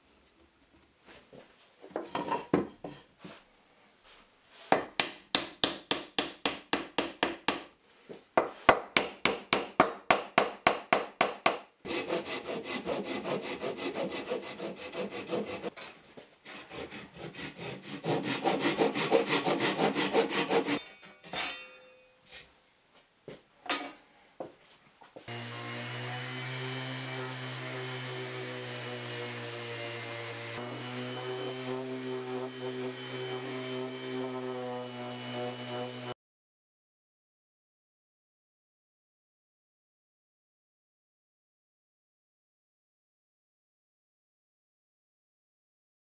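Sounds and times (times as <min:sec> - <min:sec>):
hand saw cutting wood: 0:11.8 - 0:20.8, 0:25.3 - 0:36.2.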